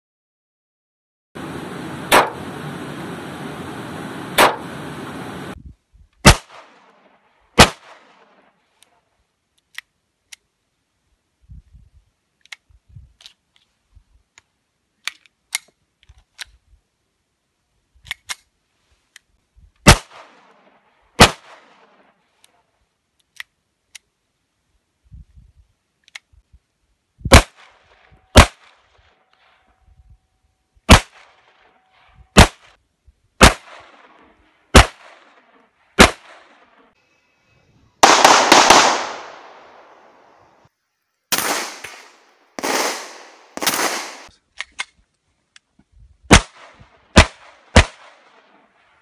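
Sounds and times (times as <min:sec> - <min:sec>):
background hiss: 0:01.4 - 0:49.0
handgun shots: 0:38.0 - 0:40.3, 0:41.3 - 0:44.3.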